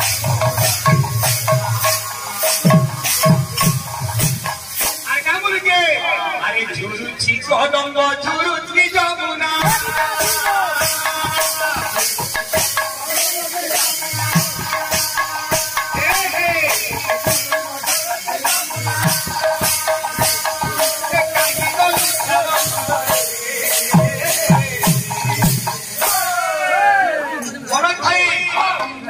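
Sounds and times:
metallic jingling beat: 0.0 - 6.1, 9.6 - 26.7.

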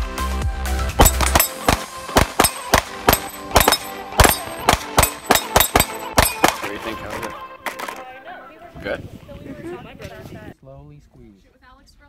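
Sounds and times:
handgun shots: 1.0 - 8.0.

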